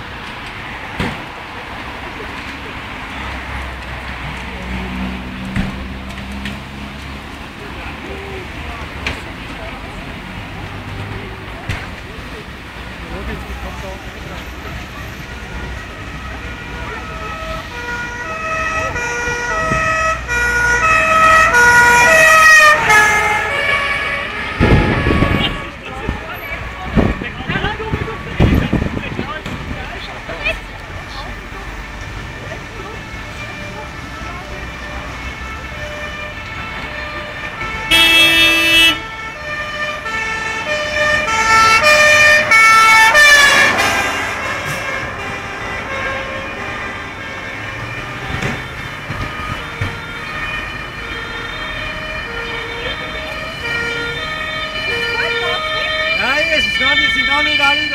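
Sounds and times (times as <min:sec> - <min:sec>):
fire engine two-tone siren: 0:13.2 - 0:29.7, 0:30.3 - 0:57.9.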